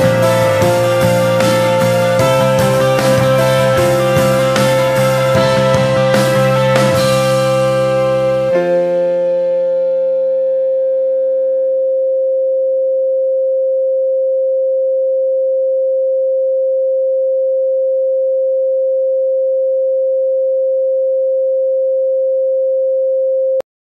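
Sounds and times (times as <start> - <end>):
keyboard chords: 0.0 - 11.1
electronic sine tone: 0.0 - 23.6.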